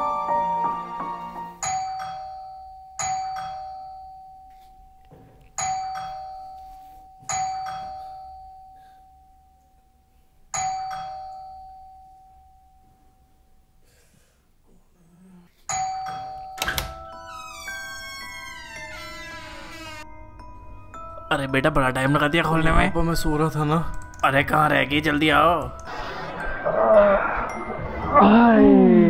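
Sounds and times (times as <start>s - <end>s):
doorbell chime: 1.6s - 9.8s, 10.5s - 13.4s, 15.7s - 23.0s.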